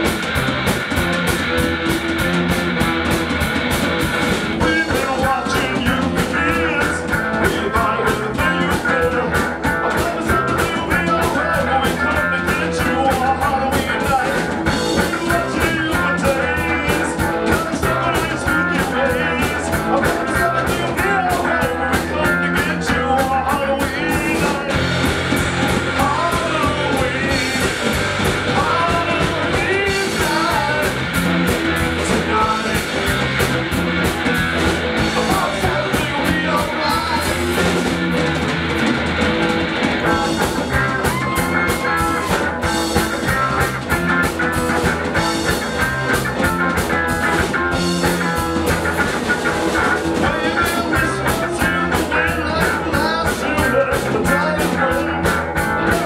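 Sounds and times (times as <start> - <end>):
bass guitar: 0.0 - 56.0
distorted electric guitars: 0.0 - 56.0
drum kit beat: 0.0 - 56.0
man singing: 4.5 - 33.6, 34.3 - 38.1, 49.5 - 56.0.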